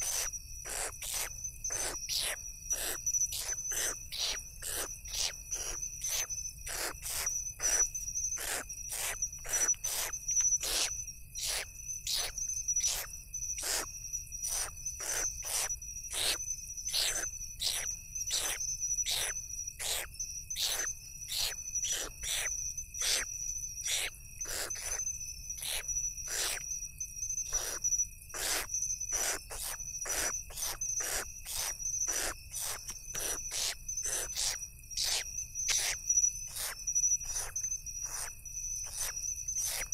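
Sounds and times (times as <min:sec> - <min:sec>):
crickets trilling: 0:00.0 - 0:39.9
owl chicks rasping hisses: 0:23.9 - 0:25.0, 0:27.5 - 0:27.8, 0:28.4 - 0:38.3, 0:38.9 - 0:39.9.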